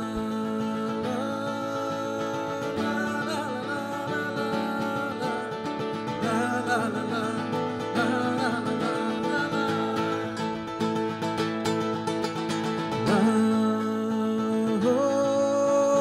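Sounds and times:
acoustic guitar strumming: 0.0 - 16.0
person singing wordless melody: 0.0 - 16.0
plucked banjo: 0.0 - 16.0.

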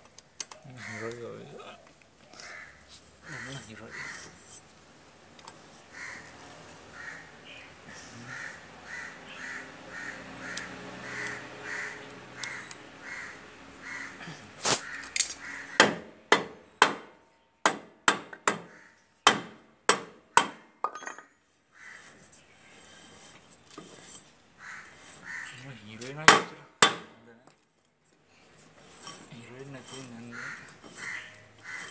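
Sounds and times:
crows cawing: 0.6 - 4.6, 5.7 - 16.2, 18.4 - 19.2, 21.7 - 22.4, 24.6 - 25.8, 29.7 - 31.9.

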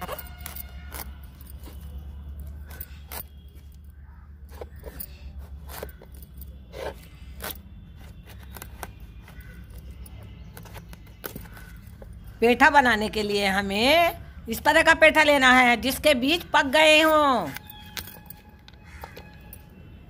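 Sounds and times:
knife cutting hard gourd rind: 4.5 - 12.2.

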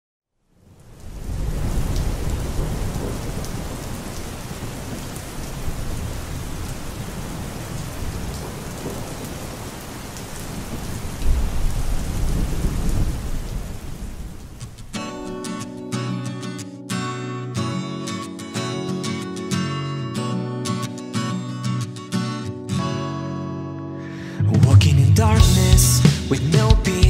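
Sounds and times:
heavy rain falling: 0.6 - 15.5
deep thunder rumbling: 1.1 - 14.9.

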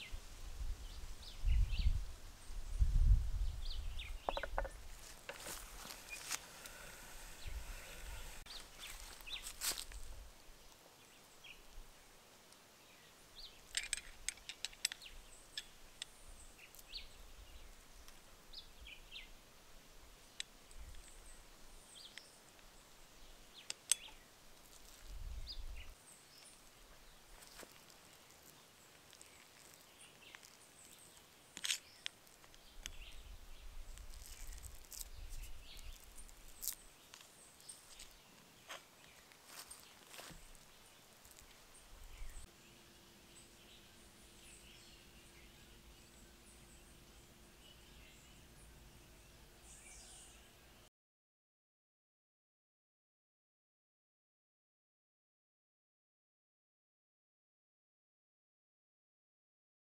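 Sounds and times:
birds chirping: 3.5 - 10.1, 25.3 - 50.6.

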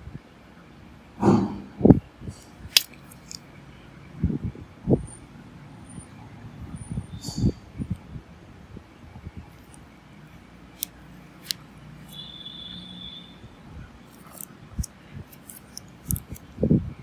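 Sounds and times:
low steady background hum: 0.0 - 17.0
high whistle-like tone: 12.1 - 13.6
sharp handling clicks: 14.1 - 16.5.

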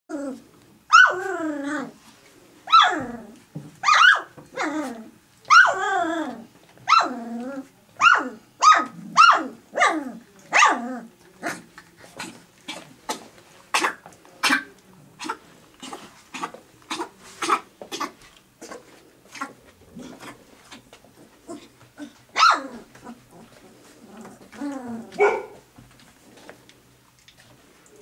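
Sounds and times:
puppies whining and yelping: 2.7 - 7.6.

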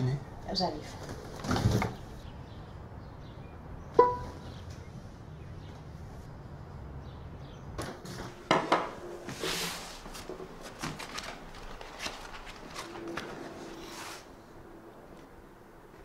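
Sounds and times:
book pages flipping: 9.3 - 14.3.

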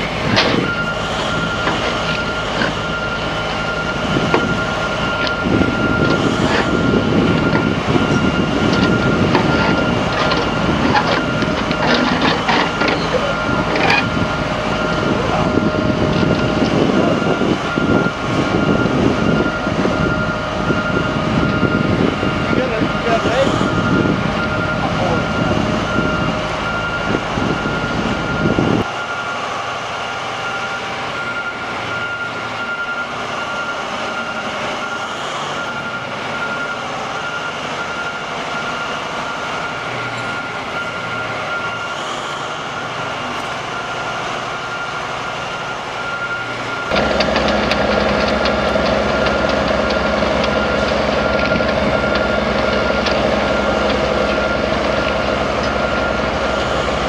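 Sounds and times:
high-pitched tone: 0.0 - 29.4
diesel engine rumbling: 0.0 - 57.0.

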